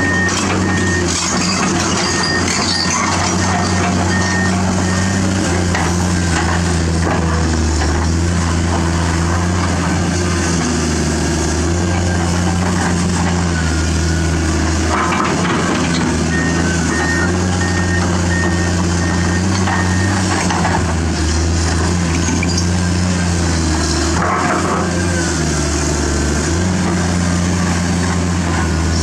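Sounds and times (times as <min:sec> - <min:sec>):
excavator diesel engine running: 0:00.0 - 0:29.0
warning alarm short beeps: 0:16.3 - 0:20.2.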